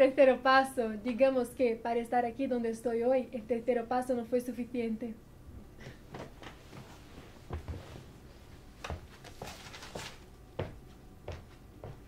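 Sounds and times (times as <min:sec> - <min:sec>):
paper rustling: 0:08.8 - 0:10.3.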